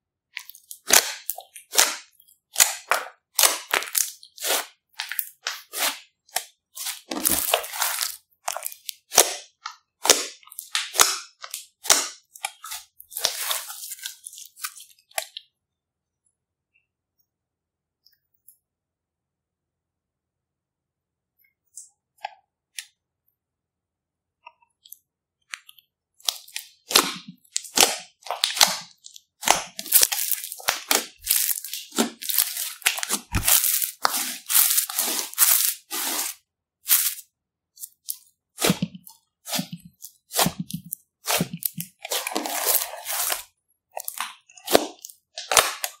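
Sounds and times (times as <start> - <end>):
slime crackling and popping: 0.4 - 6.0, 26.2 - 36.2
slime squishing: 0.4 - 15.4, 24.8 - 37.2, 37.8 - 46.0.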